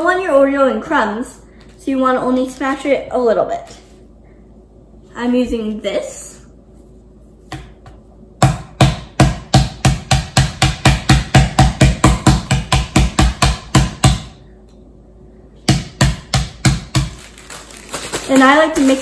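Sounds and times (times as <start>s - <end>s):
potato masher pounding cookies in bag: 16.0s - 19.0s.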